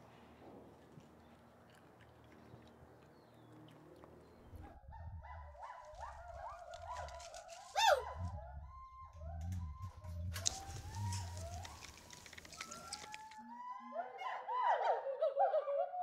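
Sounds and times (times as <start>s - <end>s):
gibbons whooping: 7.6s - 13.4s
low rumble: 8.0s - 11.7s.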